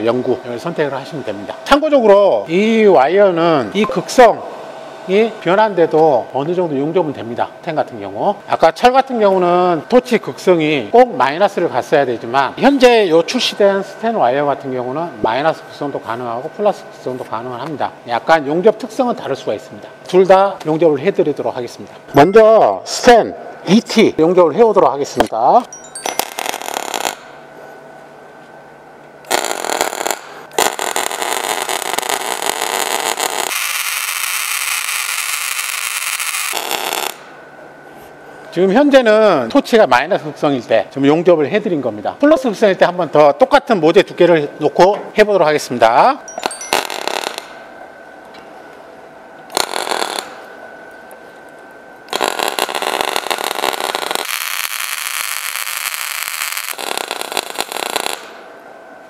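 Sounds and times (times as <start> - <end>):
faint steady whine: 0.0 - 59.0
welding arc crackling and sputtering: 26.0 - 27.3, 29.2 - 37.2, 46.4 - 47.6, 49.5 - 50.5, 52.1 - 58.4.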